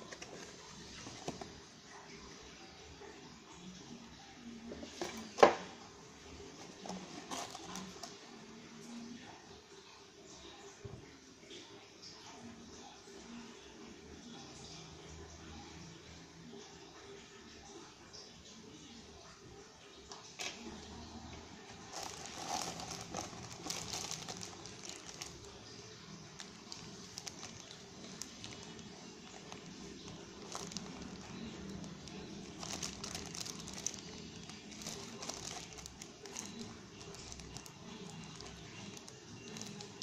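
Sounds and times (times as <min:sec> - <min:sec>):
plastic bags crinkling: 0:00.0 - 0:01.6, 0:06.6 - 0:08.2, 0:21.6 - 0:40.0.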